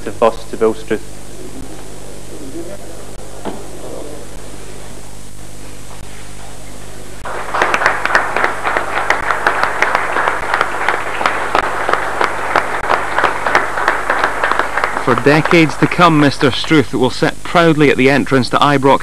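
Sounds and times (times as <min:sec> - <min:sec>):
steady hiss: 0:00.0 - 0:19.0
crowd applauding: 0:07.2 - 0:17.0.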